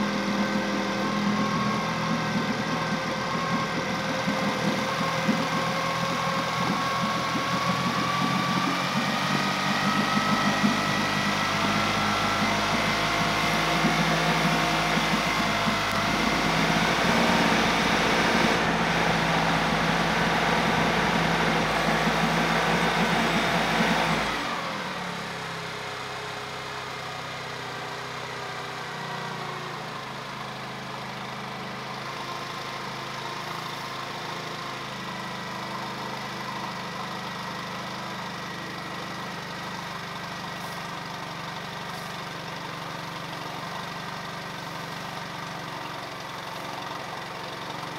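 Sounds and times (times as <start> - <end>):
outboard motor running: 0.0 - 47.9.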